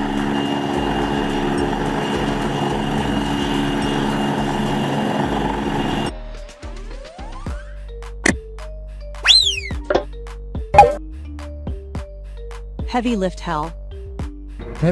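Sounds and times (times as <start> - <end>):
helicopter hovering: 0.0 - 6.1.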